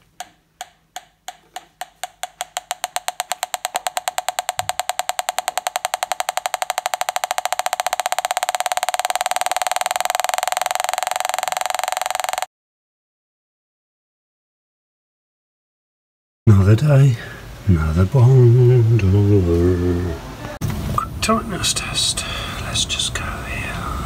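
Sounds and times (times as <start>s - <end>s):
gas leak detector ticking: 0.0s - 12.5s.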